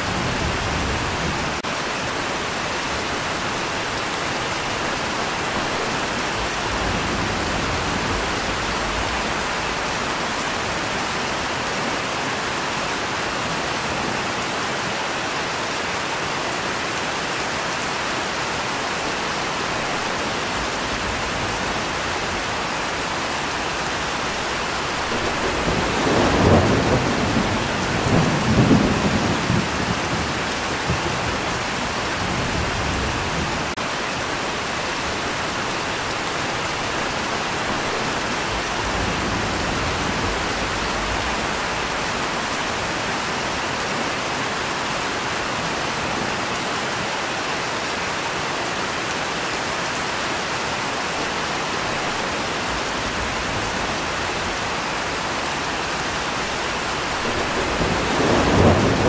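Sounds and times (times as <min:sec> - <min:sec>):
steady rain: 0:00.0 - 0:59.0
thunder rumbling: 0:24.0 - 0:33.8, 0:55.9 - 0:59.0.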